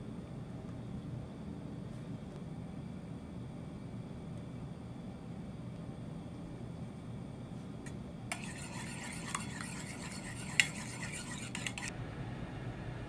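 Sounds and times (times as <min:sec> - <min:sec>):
metal spoon beating eggs in bowl: 0:08.3 - 0:11.9.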